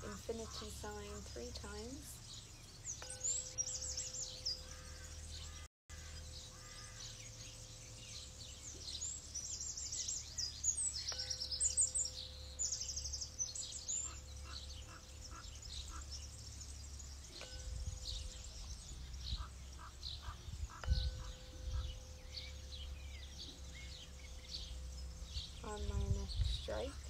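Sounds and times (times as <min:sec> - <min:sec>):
birds chirping: 0:00.0 - 0:27.0
tuning fork struck and ringing: 0:03.0 - 0:05.0, 0:06.0 - 0:15.3, 0:16.2 - 0:19.5, 0:20.8 - 0:27.0.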